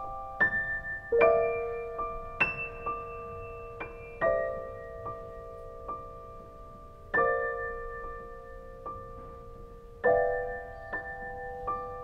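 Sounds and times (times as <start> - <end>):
solo piano playing: 0.0 - 12.0.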